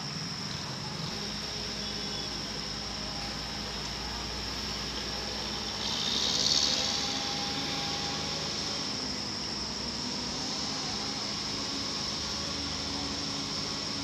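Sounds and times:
electric train approaching: 0.0s - 14.0s.

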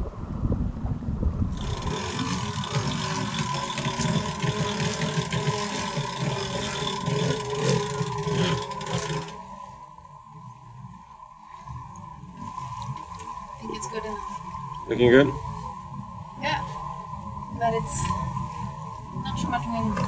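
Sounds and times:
mechanical running hum: 0.4s - 10.5s.

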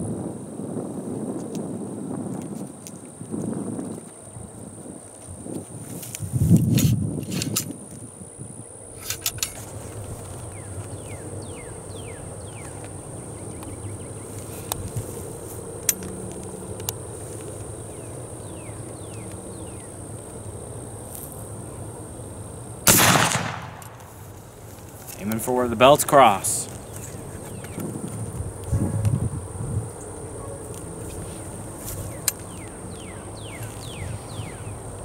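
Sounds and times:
rifle shot: 22.9s - 24.2s.

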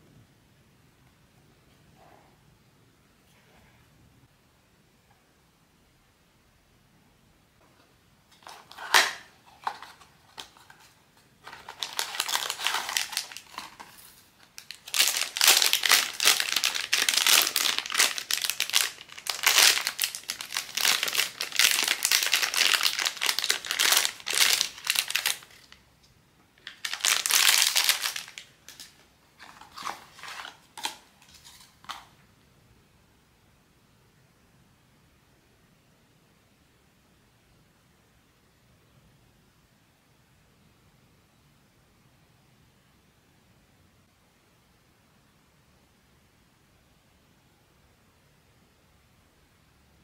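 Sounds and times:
packaging crinkling and tearing: 8.3s - 25.8s, 26.6s - 32.1s.

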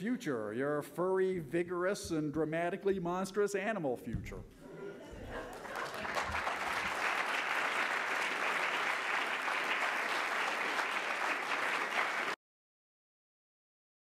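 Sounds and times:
audience applauding: 5.3s - 12.4s.

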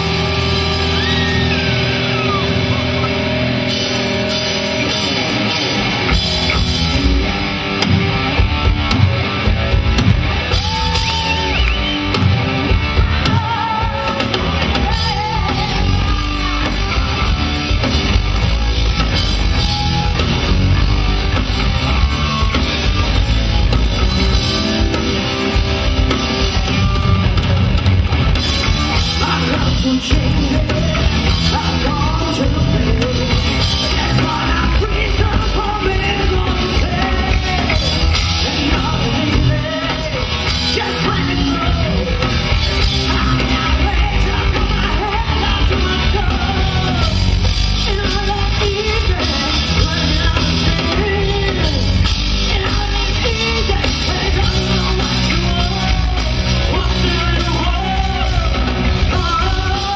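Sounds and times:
bass guitar: 0.0s - 59.9s
drum kit: 0.0s - 59.9s
electric guitar: 0.0s - 59.9s
lead vocalist singing: 12.8s - 18.2s, 28.6s - 59.9s.

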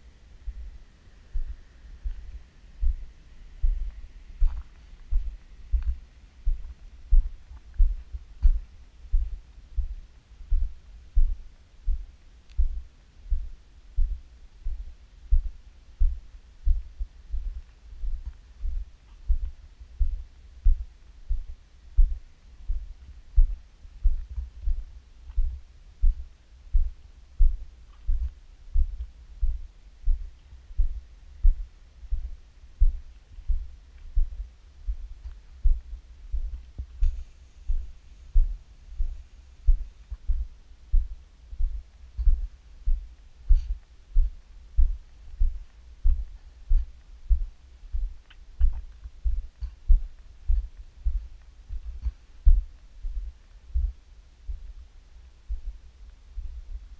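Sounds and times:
footsteps on gravel path: 1.4s - 9.4s.

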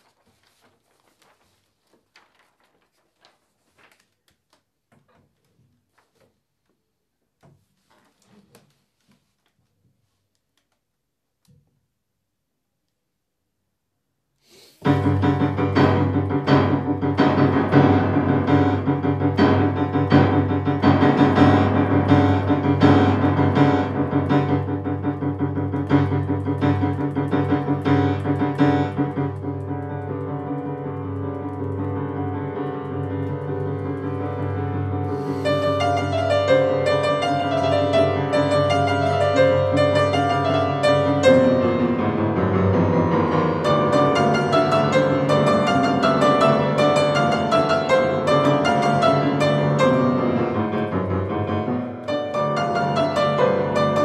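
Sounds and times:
solo piano piece: 14.8s - 54.0s.

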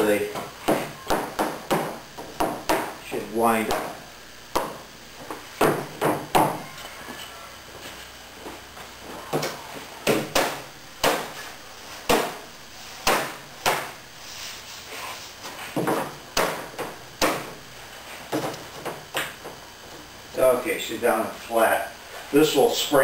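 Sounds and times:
wood block knocking on plywood: 4.6s - 6.6s.

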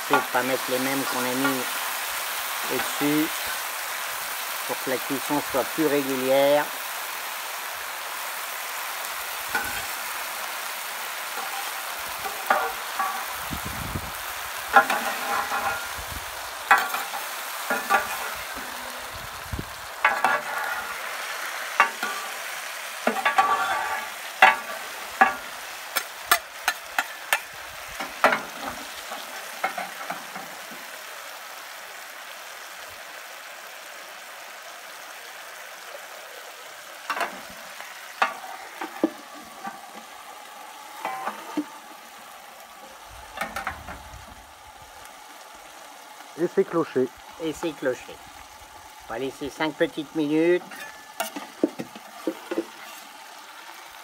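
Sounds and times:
food sizzling on hot plate: 0.0s - 54.0s
metal spatulas scraping steel: 14.8s - 15.9s, 20.1s - 21.0s, 23.1s - 25.4s.

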